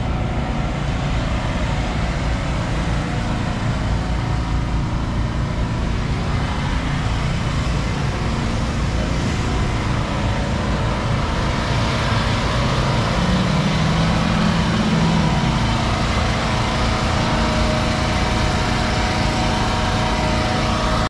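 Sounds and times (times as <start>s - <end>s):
engine running: 0.0s - 21.0s
low hum: 0.0s - 21.0s.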